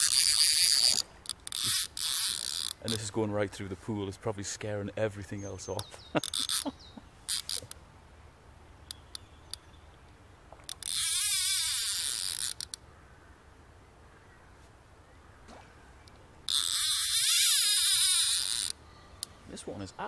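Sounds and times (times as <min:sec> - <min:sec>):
fishing reel drag buzzing: 0:00.0 - 0:03.1, 0:06.2 - 0:06.7, 0:07.3 - 0:07.8, 0:10.7 - 0:12.8, 0:16.4 - 0:19.3
light reel clicks: 0:00.0 - 0:03.1, 0:07.3 - 0:07.8, 0:10.6 - 0:12.8, 0:16.0 - 0:19.4.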